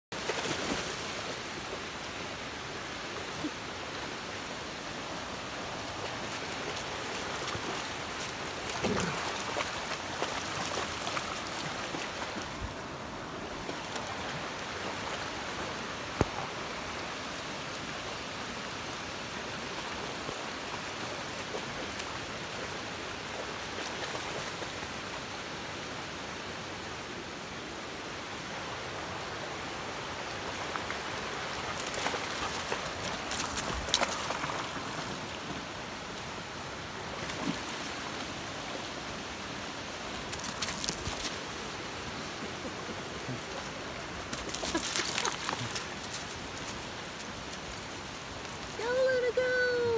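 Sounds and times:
creek rushing over stones: 0.1 - 49.9
dogs splashing through water: 5.9 - 12.6.

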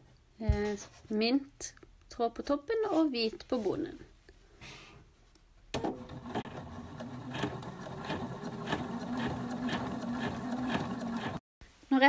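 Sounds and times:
sewing machine running: 5.8 - 11.4.

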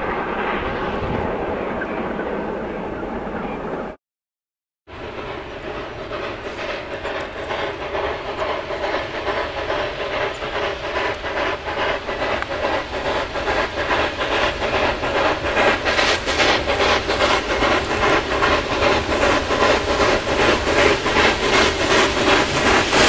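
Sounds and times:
steam locomotive exhaust beats: 4.9 - 23.0.

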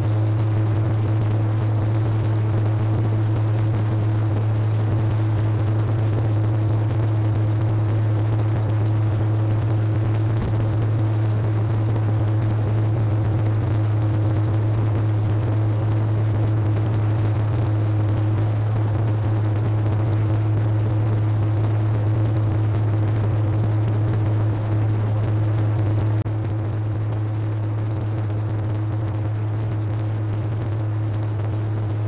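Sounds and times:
low hum: 0.0 - 32.0.

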